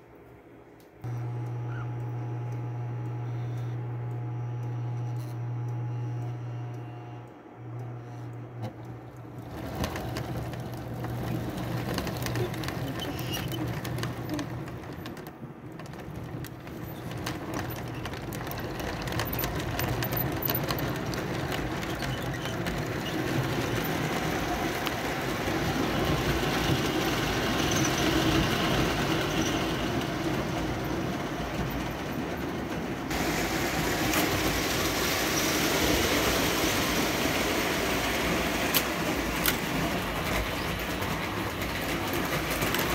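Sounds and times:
electric hum: 1.0s - 14.8s
model train rolling rumble: 1.2s - 42.9s
wheels clicking over rail joints: 7.9s - 42.9s.

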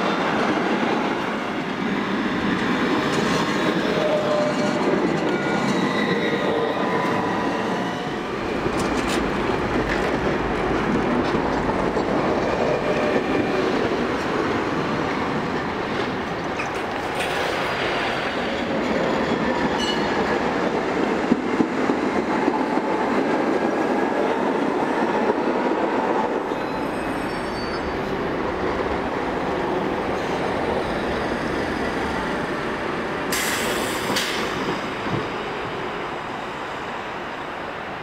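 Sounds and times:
tram wheels rumbling on track: 0.0s - 38.0s
high wheel squeal: 3.8s - 8.2s, 26.5s - 28.1s.

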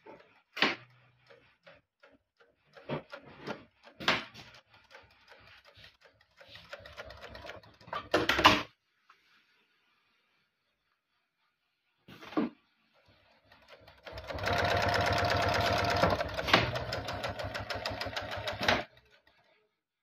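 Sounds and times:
industrial sewing machine stitching: 0.0s - 8.6s, 13.0s - 19.6s.

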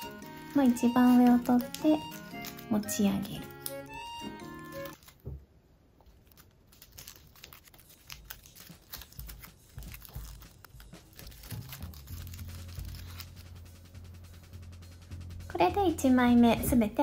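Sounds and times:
paper crinkling: 0.0s - 5.4s, 6.0s - 13.7s.

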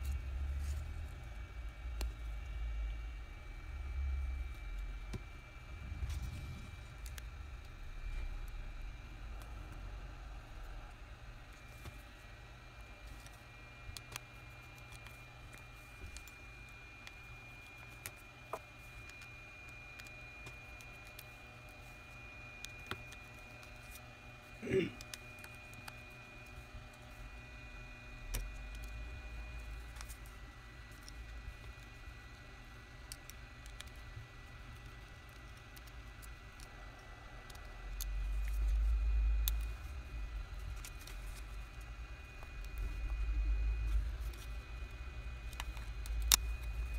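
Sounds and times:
faint high whine: 0.0s - 46.9s
low hum: 0.0s - 46.9s
low rumble: 2.5s - 11.6s.

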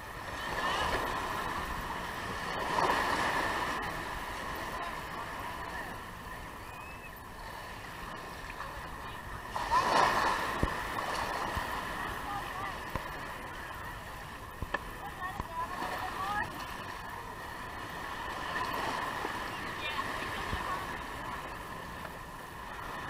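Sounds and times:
small waves breaking on sand: 0.0s - 23.0s
people's voices in background: 0.2s - 23.0s
thin steady high tone: 3.4s - 9.9s.

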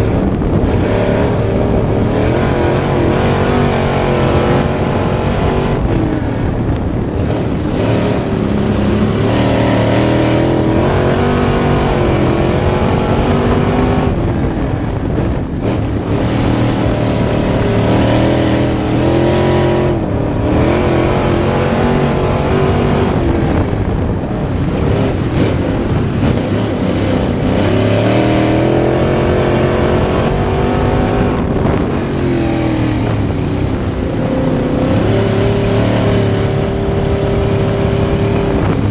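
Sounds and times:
race car engine revving: 0.0s - 38.9s.

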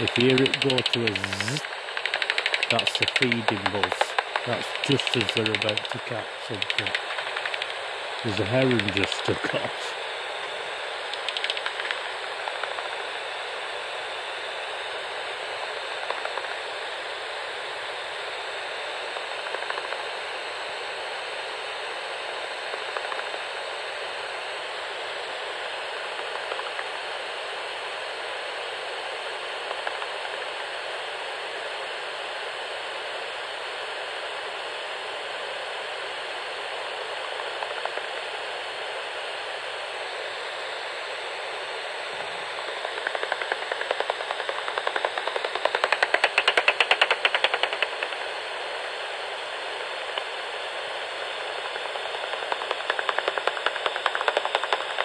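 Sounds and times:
bat echolocation clicks: 2.0s - 6.0s, 6.6s - 7.8s, 11.1s - 12.0s, 43.0s - 48.1s, 52.4s - 55.0s.

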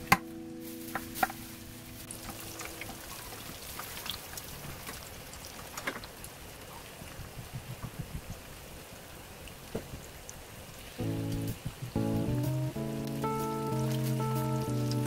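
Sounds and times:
patties deep-frying in hot oil: 2.0s - 6.3s.

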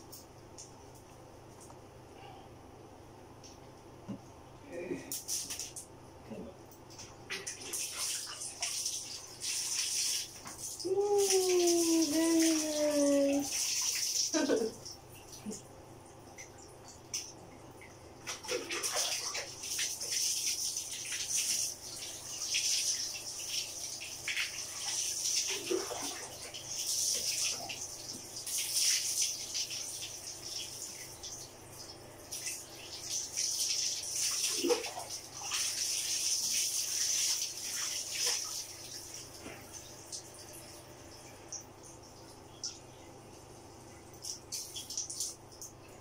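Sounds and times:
water pouring and splashing: 6.9s - 15.6s, 18.2s - 40.8s.

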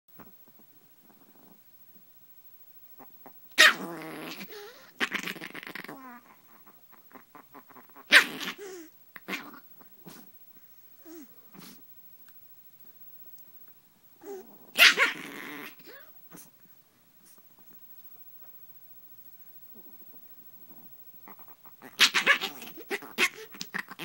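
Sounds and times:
small dog growling and snarling: 0.2s - 1.7s, 2.9s - 10.4s, 11.0s - 11.8s, 14.2s - 17.8s, 19.7s - 24.0s.

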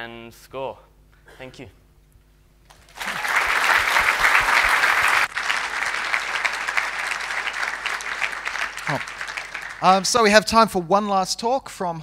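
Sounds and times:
audience applauding: 2.7s - 10.6s.

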